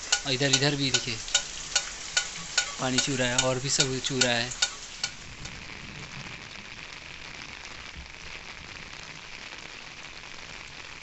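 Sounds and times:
heavy rain on an umbrella: 2.8 - 11.0.

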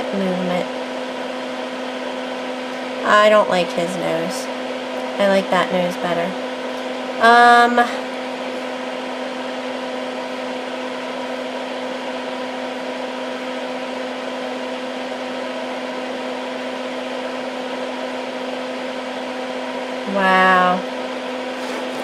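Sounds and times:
fume extractor fan humming: 0.0 - 22.0.

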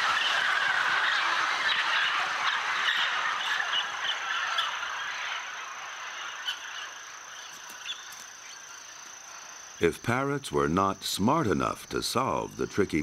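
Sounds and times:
parrots and macaws calling: 0.0 - 9.4
high insect-like whine: 0.0 - 13.0.

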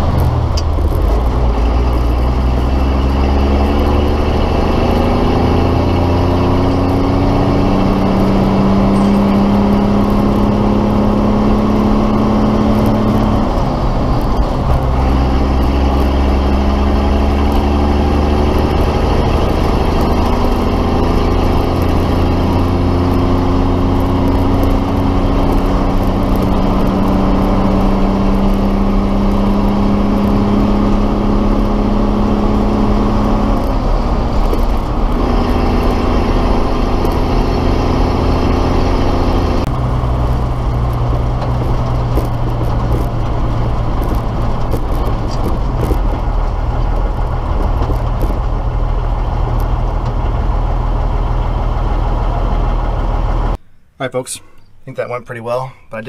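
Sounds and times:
truck diesel engine driving: 0.0 - 56.0.

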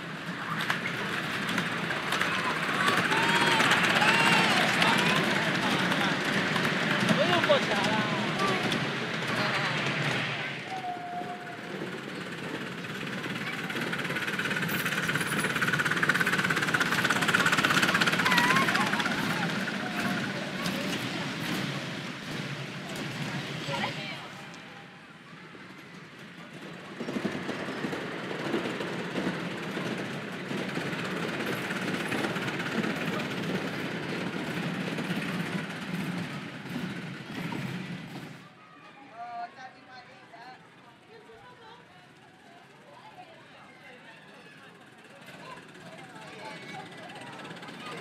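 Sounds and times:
miniature steam train running past: 0.0 - 48.0
steam locomotive exhaust beats: 1.4 - 23.7.

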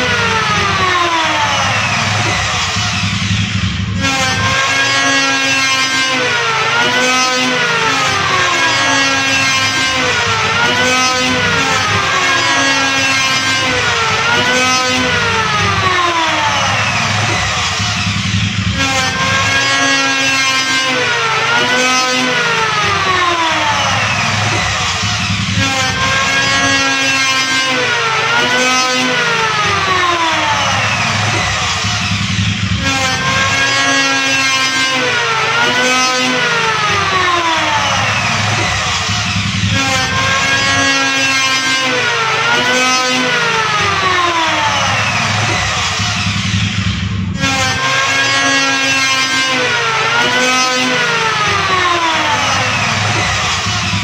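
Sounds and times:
electric wood planer motor whine: 0.0 - 54.0.

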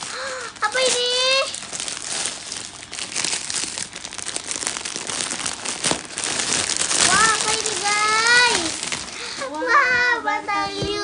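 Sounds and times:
plastic wrapping crinkling: 0.0 - 9.6.

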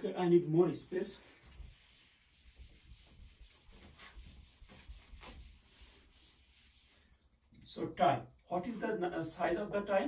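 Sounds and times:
eraser wiping whiteboard: 1.0 - 7.4.

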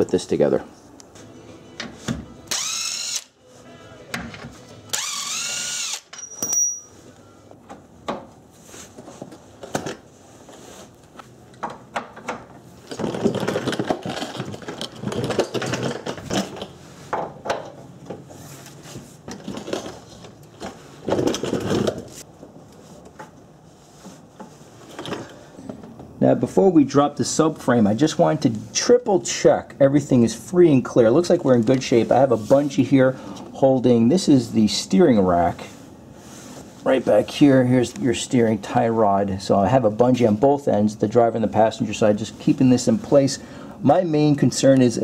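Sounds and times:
power tool spinning bolts: 2.5 - 3.3, 4.9 - 6.8.

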